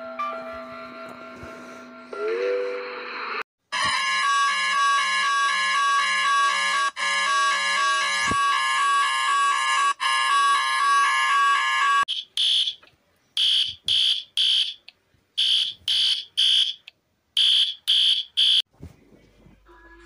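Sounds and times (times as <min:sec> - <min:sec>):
harsh alarm tone: 0:03.7 - 0:12.8, 0:15.4 - 0:16.8.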